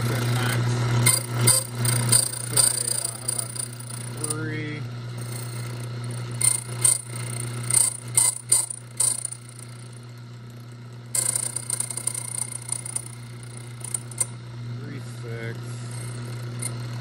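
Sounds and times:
machine cutting metal key: 0.0 - 4.4, 5.2 - 10.0, 11.2 - 14.4, 15.8 - 17.0
machine hum: 0.0 - 17.0
machine clicking and ratcheting: 1.0 - 4.3, 5.2 - 9.9, 11.1 - 14.4, 16.0 - 17.0.

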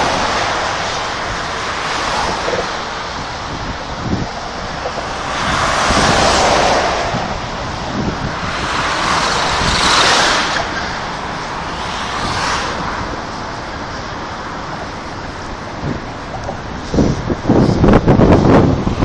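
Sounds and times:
road traffic: 0.0 - 19.0
wind: 0.0 - 19.0.

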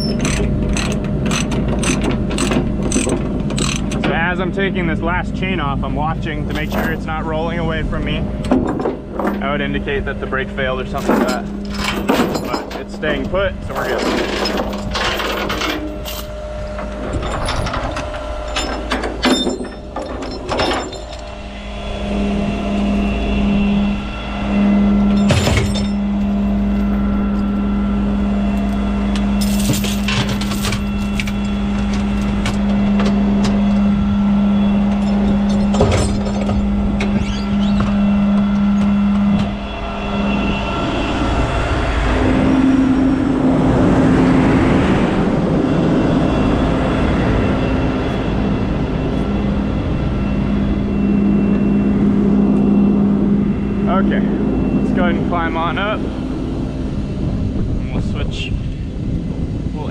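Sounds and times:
metal chains clanking and rattling: 0.0 - 4.4, 6.5 - 7.5, 8.5 - 9.7, 10.8 - 21.4, 25.1 - 27.6, 29.4 - 33.1, 34.9 - 37.9
steady mechanical hum: 0.0 - 59.9.

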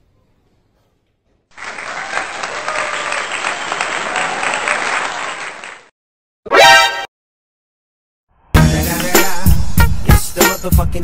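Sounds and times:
crowd applauding: 1.5 - 5.9.

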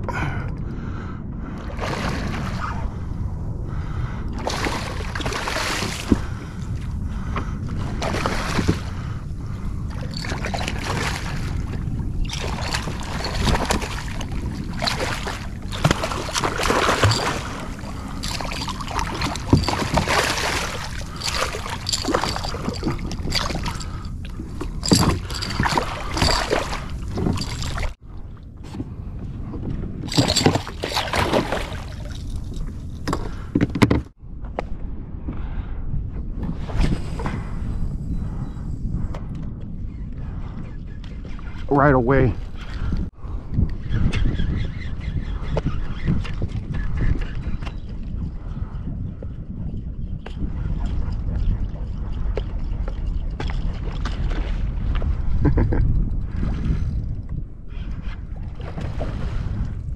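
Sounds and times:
wind rumble on microphone: 0.0 - 59.9
fish thrashing in water: 4.4 - 6.2, 10.0 - 28.0, 30.1 - 33.3.

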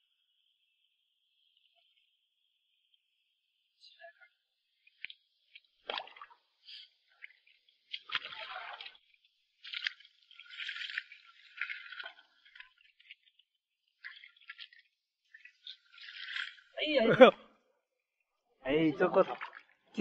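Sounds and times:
hands splashing in water: 4.9 - 13.3, 19.1 - 19.8.

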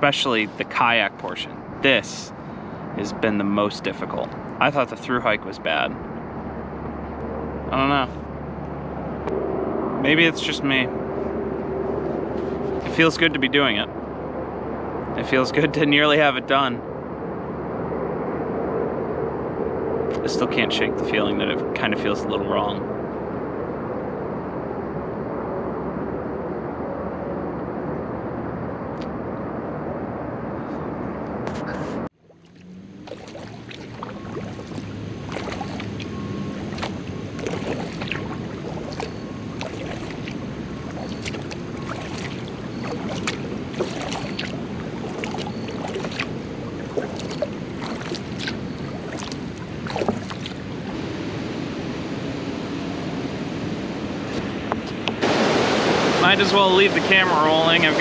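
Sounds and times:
wind: 0.0 - 58.0
water wash: 10.0 - 10.8, 12.0 - 13.9, 32.2 - 51.2, 54.1 - 58.0
paddle splashes and drips: 32.2 - 51.0.

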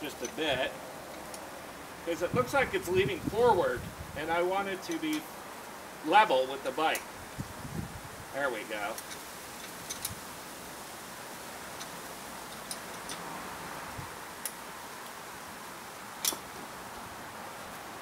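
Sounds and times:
faint hiss: 0.0 - 18.0
wrench clicking on metal bolts: 8.9 - 10.2, 11.8 - 13.3, 16.2 - 16.5.

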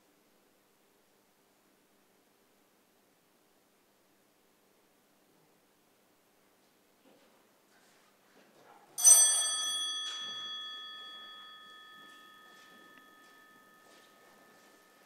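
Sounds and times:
small bell ringing: 9.0 - 15.0.

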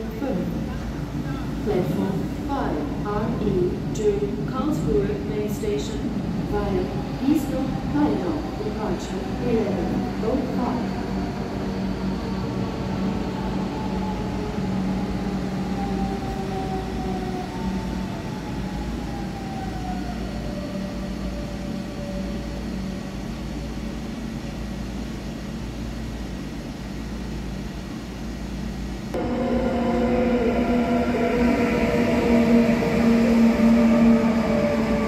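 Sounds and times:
loud electric train whine: 0.0 - 35.0
electric train drive whine: 29.0 - 35.0.

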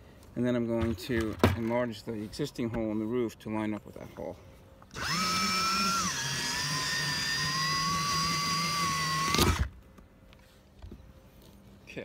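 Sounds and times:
cordless drill whining: 4.9 - 9.7
drill clatter: 4.9 - 9.7.

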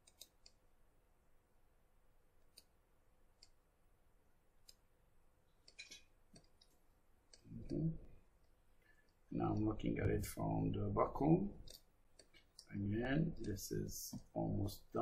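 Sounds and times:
computer mouse clicks: 0.0 - 0.6, 2.5 - 2.7, 3.4 - 3.6, 4.6 - 4.8, 5.6 - 7.8, 11.6 - 12.7.

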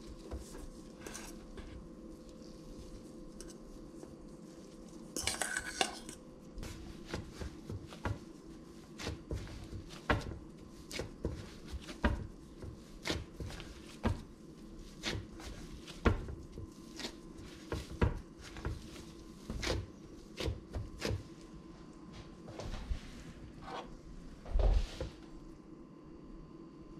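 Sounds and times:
faint steady hum: 0.0 - 26.9
hands patting dough: 6.6 - 21.6.

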